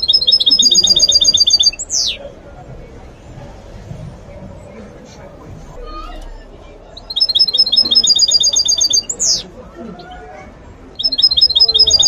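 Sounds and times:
bird singing rapid trill: 0.0 - 2.3, 5.8 - 9.5, 10.9 - 12.0.

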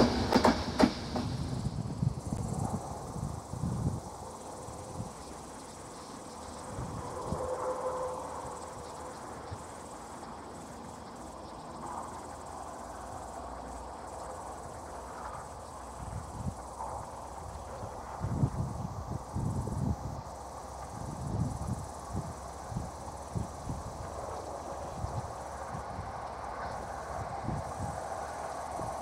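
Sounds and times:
insects chirping: 0.0 - 29.0.

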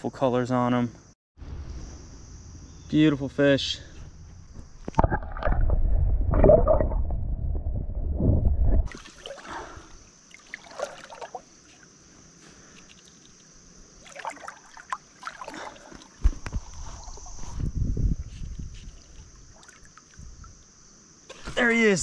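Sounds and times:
steady high-pitched hiss: 0.0 - 5.0, 8.9 - 15.4, 16.0 - 22.0
muffled gurgling rumble: 3.9 - 8.9
river water splashing and trickling: 8.9 - 17.5, 18.9 - 20.8.

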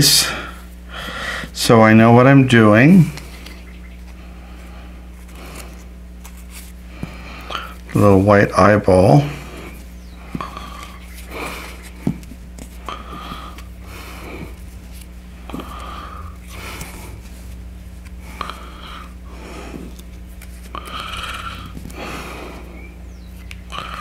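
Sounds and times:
low hum: 0.0 - 24.0
person breathing through nose: 0.4 - 1.6, 15.4 - 17.3, 18.2 - 20.0, 20.6 - 22.9, 23.7 - 24.0.

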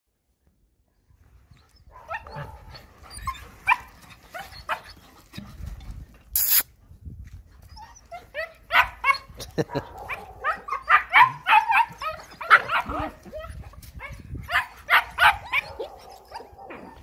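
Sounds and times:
puppies yipping and squealing: 1.6 - 5.4, 6.4 - 6.6, 10.4 - 17.0.

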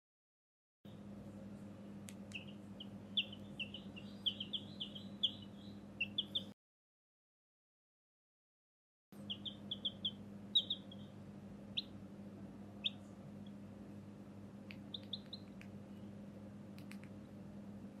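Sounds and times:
baby chick peeping: 0.9 - 6.6, 9.2 - 17.4
faint steady hum: 0.9 - 6.6, 9.2 - 18.0.

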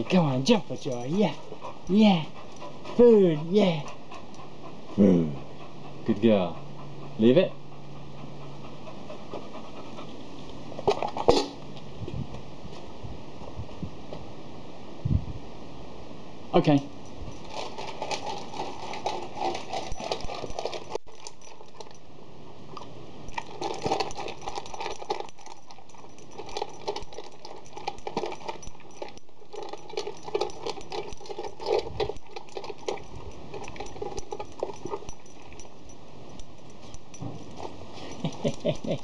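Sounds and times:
puppy eating from metal bowl: 0.0 - 4.4, 10.8 - 11.6, 17.0 - 22.1, 22.7 - 39.0.

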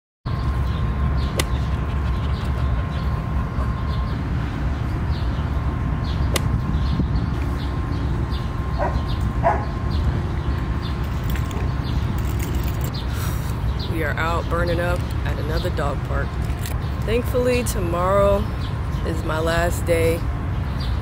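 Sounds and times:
low rumble: 0.3 - 20.7
dog barking: 8.8 - 9.8.

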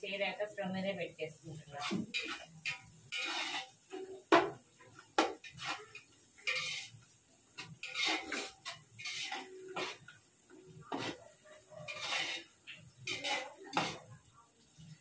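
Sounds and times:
onions frying: 0.0 - 15.0
spoon scraping a cooking pot: 1.7 - 4.2, 5.2 - 14.2.

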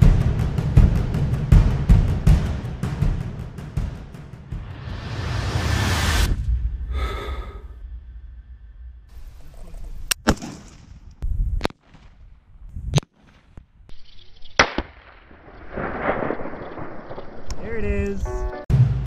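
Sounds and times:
rifle shots: 10.2 - 11.1, 14.6 - 17.5.

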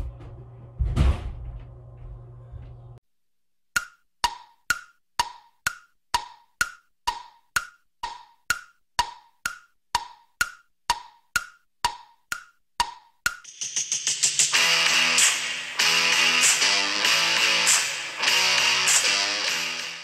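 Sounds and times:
clock ticking: 3.8 - 13.8.

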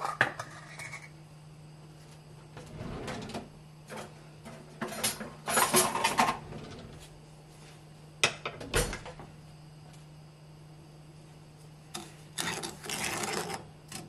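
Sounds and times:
steady low hum: 0.0 - 14.0
kitchen utensils clattering: 3.0 - 6.8.

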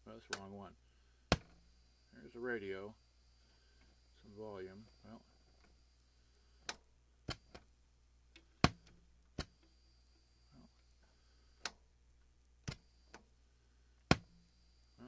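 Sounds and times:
radio switches and knobs clicking: 0.1 - 0.6, 6.4 - 7.7, 8.3 - 9.8, 10.7 - 11.9, 12.6 - 13.3.

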